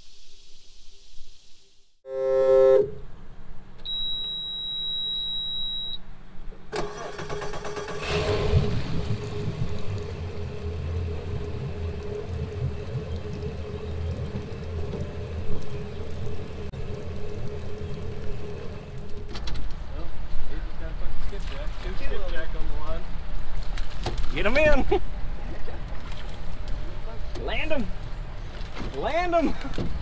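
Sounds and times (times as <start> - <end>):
outboard motor starting and idling: 6.7 - 20.0.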